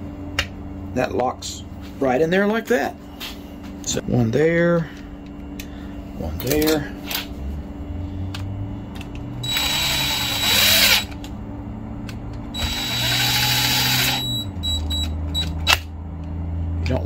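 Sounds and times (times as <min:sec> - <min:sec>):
cordless drill driving screws: 0:09.4 - 0:11.1, 0:12.6 - 0:14.4.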